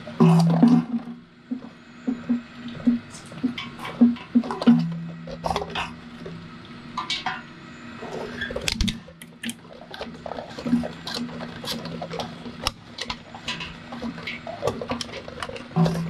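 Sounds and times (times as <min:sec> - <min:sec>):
blades knocking and scraping: 0:09.4 - 0:16.0.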